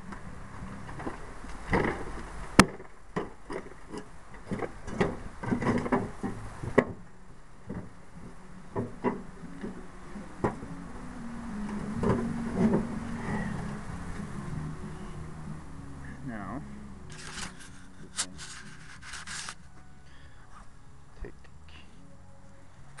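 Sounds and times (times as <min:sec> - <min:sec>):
jacket sleeve rubbing on camera: 0:17.1 - 0:19.7.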